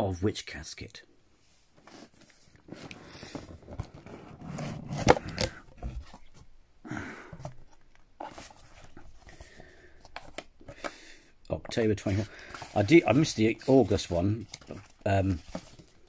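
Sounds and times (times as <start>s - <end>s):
card rustling and scuffing: 1.7s - 6.5s, 7.3s - 11.0s, 11.6s - 16.0s
cardboard lid scraping: 1.8s - 6.4s.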